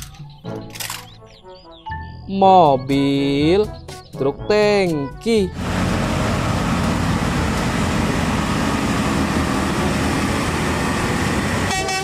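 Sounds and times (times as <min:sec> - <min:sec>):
truck diesel engine drone: 0:05.5 - 0:12.0.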